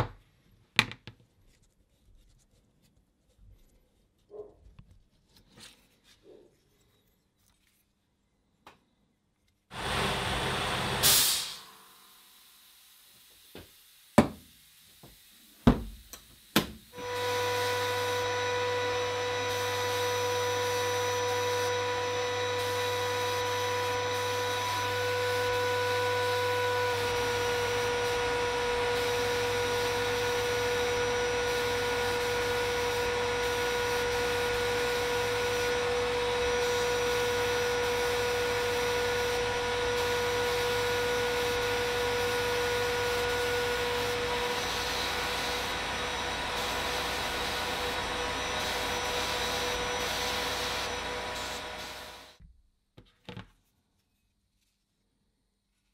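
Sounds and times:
blasting cabinet whine and hiss: 9.7 - 52.4.

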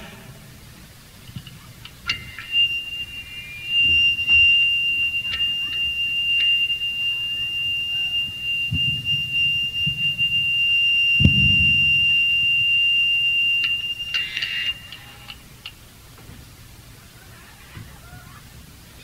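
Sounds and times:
amplifier feedback whine: 0.0 - 17.2
low thuds: 1.1 - 14.9
short noisy burst: 1.6 - 15.6.

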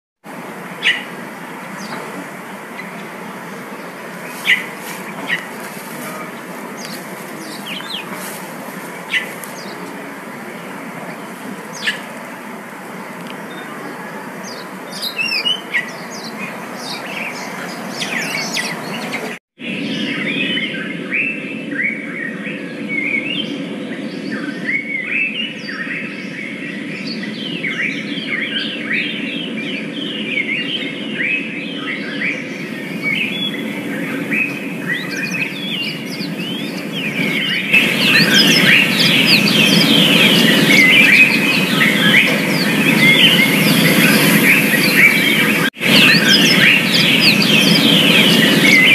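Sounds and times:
outdoor background noise: 0.2 - 48.9
canaries chirping: 0.8 - 12.2, 13.3 - 19.4, 32.6 - 48.9.

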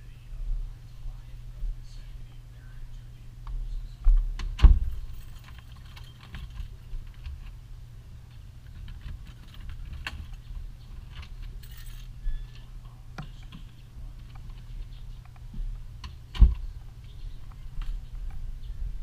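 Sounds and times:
steady low rumble: 0.0 - 19.0
door opening and shutting: 4.1 - 7.5, 16.0 - 16.7
keys jangling in a door lock: 5.0 - 7.3, 11.1 - 12.2.

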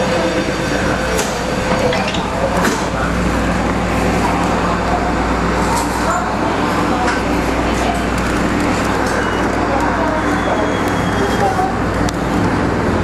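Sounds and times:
train motors and wheels rumbling: 0.0 - 13.0.

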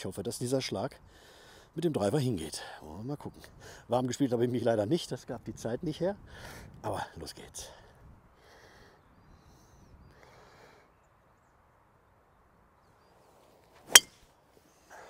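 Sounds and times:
golf driver striking ball: 13.9 - 14.2.

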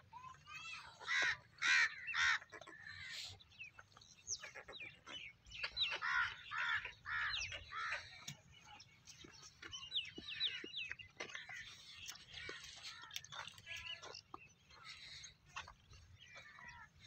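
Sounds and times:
small birds chirping: 0.0 - 17.0
crows cawing: 1.0 - 3.2, 5.8 - 8.2.

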